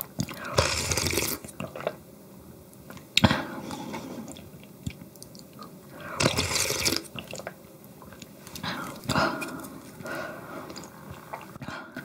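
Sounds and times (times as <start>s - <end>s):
person chewing food: 2.9s - 12.0s.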